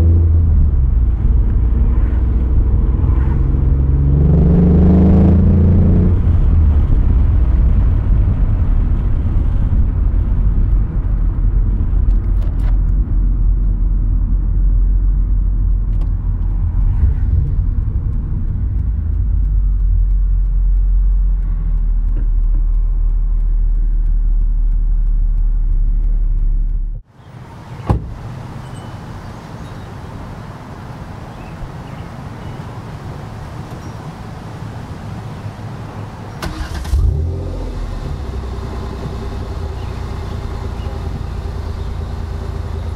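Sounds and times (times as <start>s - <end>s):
car exhaust idling rumble: 6.3s - 27.0s, 37.8s - 42.9s
sharp knock: 27.9s - 28.2s.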